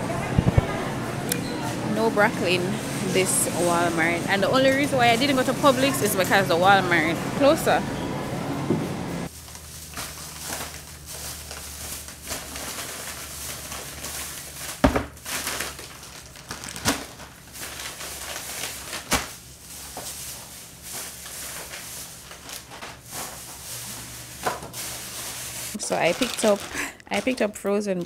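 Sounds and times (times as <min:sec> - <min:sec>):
plastic bags crinkling: 0:09.3 - 0:27.6
packages knocking on countertop: 0:14.7 - 0:15.2, 0:24.4 - 0:24.8.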